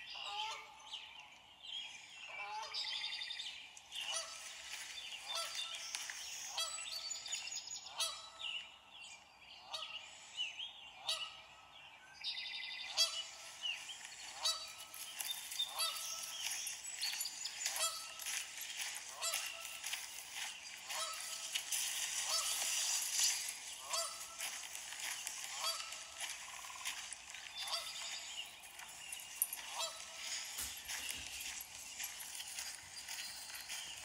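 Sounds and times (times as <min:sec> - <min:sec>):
geese honking: 0:04.0 - 0:07.0, 0:07.9 - 0:08.4, 0:12.9 - 0:34.0.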